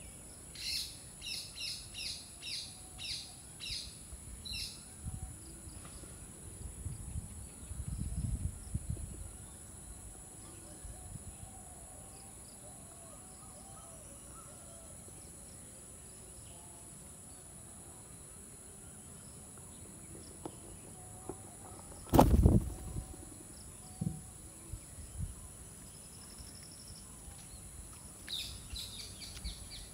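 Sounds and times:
insect chorus: 0:00.0 - 0:29.9
loud thump: 0:22.1 - 0:23.0, 0:24.0 - 0:24.3.

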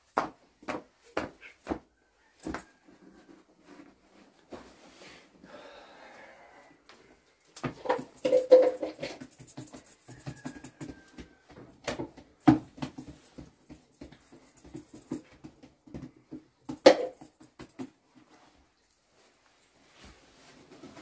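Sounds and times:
dough being slapped and patted: 0:00.0 - 0:02.6.

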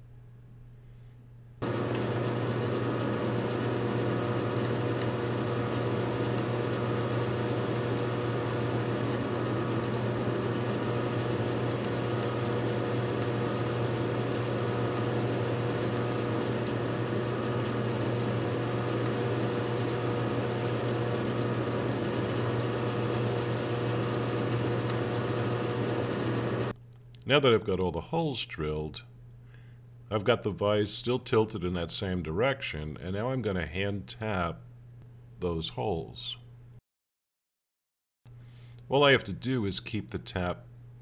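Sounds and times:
drill boring into metal: 0:01.6 - 0:26.7
drill press motor humming: 0:01.6 - 0:26.8.

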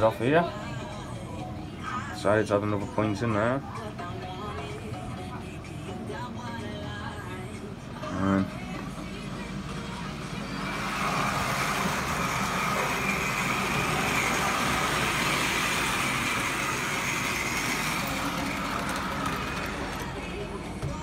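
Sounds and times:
model train motor whirring: 0:10.7 - 0:20.4.

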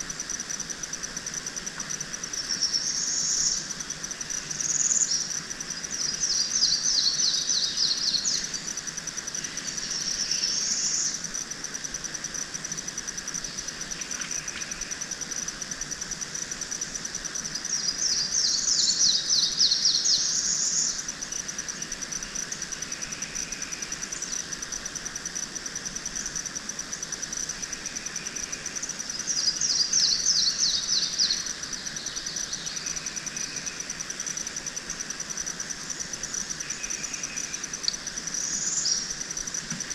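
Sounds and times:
high-pitched insect trill: 0:00.0 - 0:39.9
bird singing: 0:04.5 - 0:08.7, 0:17.6 - 0:21.1, 0:29.1 - 0:33.8, 0:36.2 - 0:39.1.

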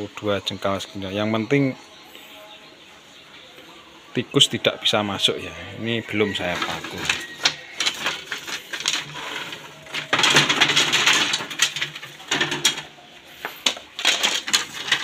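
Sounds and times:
bamboo strips clattering: 0:06.0 - 0:15.0.

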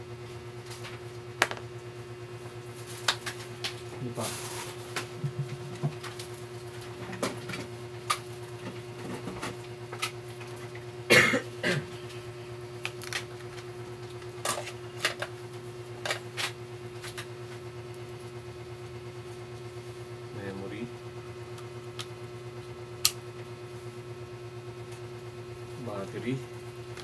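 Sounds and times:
steady low hum: 0:00.0 - 0:27.0
person coughing: 0:11.1 - 0:12.0.

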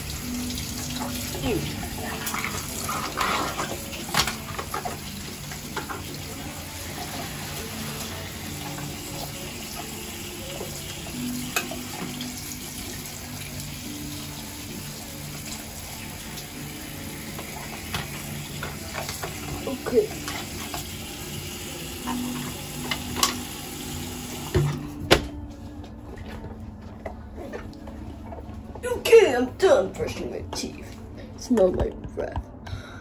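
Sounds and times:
tap running into sink: 0:17.3 - 0:21.0.

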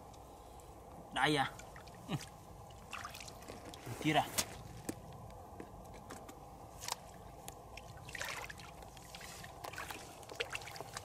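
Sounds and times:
low steady background noise: 0:00.0 - 0:11.0
hands sloshing in muddy water: 0:01.7 - 0:03.8, 0:07.8 - 0:11.0.

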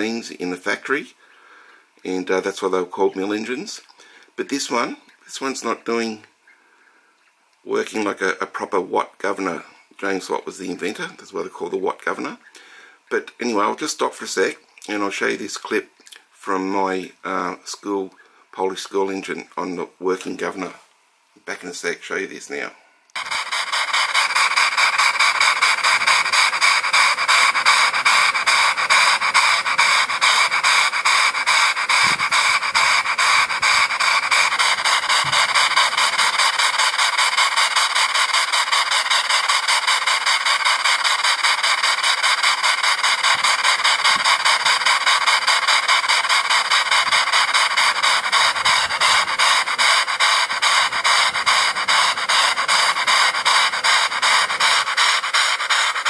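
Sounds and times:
model engine exhaust puffing: 0:23.1 - 0:56.0.

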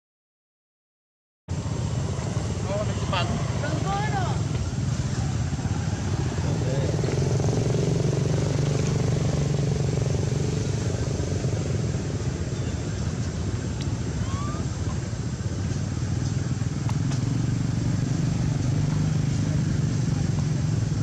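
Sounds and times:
faint rising chirp: 0:07.2 - 0:15.2.

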